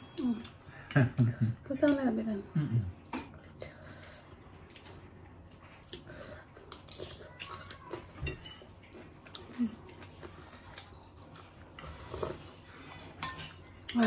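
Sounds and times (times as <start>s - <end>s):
people chewing: 0.0s - 14.0s
forks clinking on plates: 8.2s - 8.7s, 13.2s - 14.0s.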